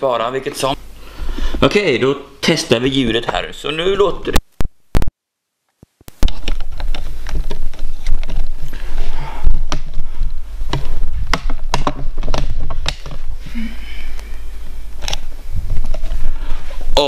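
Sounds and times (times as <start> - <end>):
microphone handling noise: 4.3 - 5.1, 5.8 - 17.0
sharp knocks and clicks: 10.7 - 13.2.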